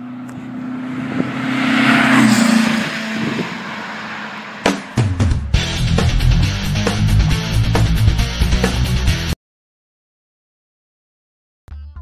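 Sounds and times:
vehicle engine passing by: 0.0 - 7.6.

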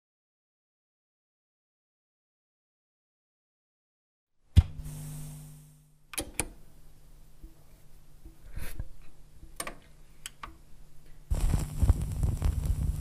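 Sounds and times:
low steady hum: 4.5 - 13.0
vinyl clicks and pops: 11.3 - 13.0.

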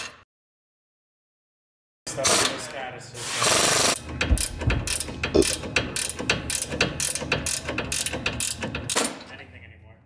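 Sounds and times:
ratchet clicks: 4.4 - 9.0.

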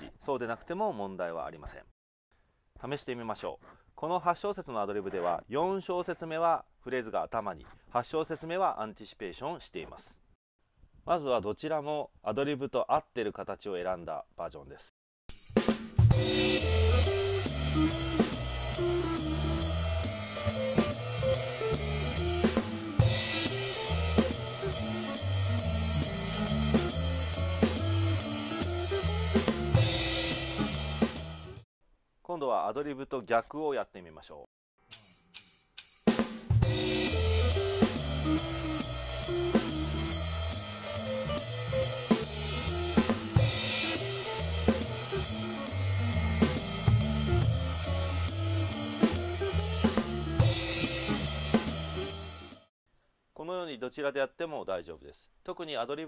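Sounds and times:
jazz drum kit swing pattern: 15.3 - 31.6, 36.1 - 52.6
bass line: 16.0 - 31.6, 36.6 - 52.4
crash cymbal: 35.0 - 48.4.

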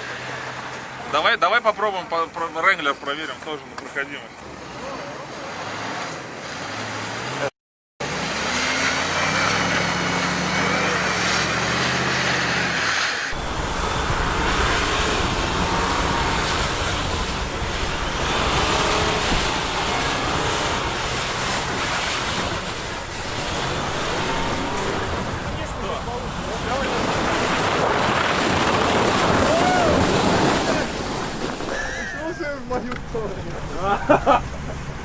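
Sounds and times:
car engine under load: 0.0 - 35.0
engine revving: 4.4 - 31.6
wheels spinning in snow: 8.2 - 35.0.

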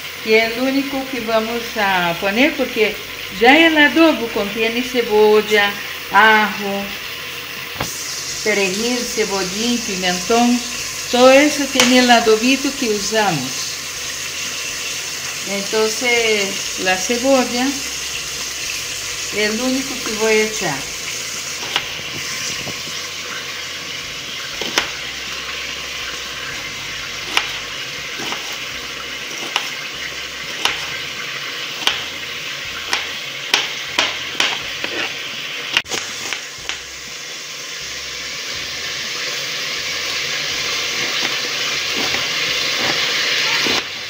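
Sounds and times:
chicken sizzling in pot: 0.0 - 44.0
knife cutting on cutting board: 21.5 - 23.0, 24.6 - 25.1, 26.5 - 32.2, 32.8 - 36.8, 40.9 - 43.9.

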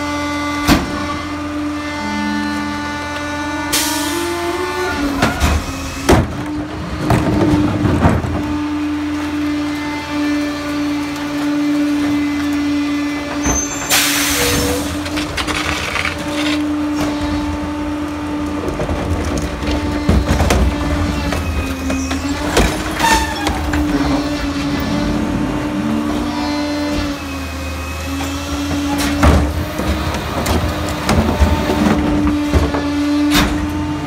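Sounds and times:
garbage truck running: 0.0 - 34.0
carts banging and knocking: 4.9 - 9.4, 18.4 - 25.0, 28.3 - 34.0.

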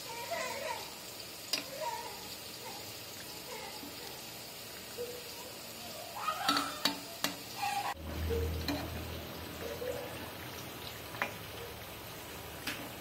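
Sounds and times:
prawns frying in gravy: 0.0 - 13.0
metal spatula scraping pan: 6.5 - 9.1.

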